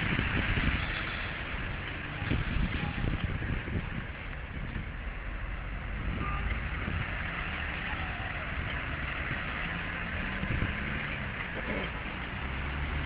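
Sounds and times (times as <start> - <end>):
car tyres hissing on wet road: 0.0 - 4.1
wind rumble on microphone: 0.0 - 7.4, 10.1 - 12.0.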